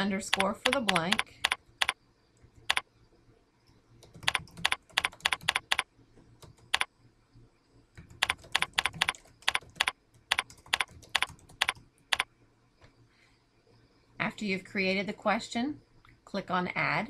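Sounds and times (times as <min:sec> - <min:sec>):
typing on computer keyboard: 0:00.3 - 0:02.0, 0:02.6 - 0:02.8, 0:04.0 - 0:06.9, 0:08.0 - 0:12.3.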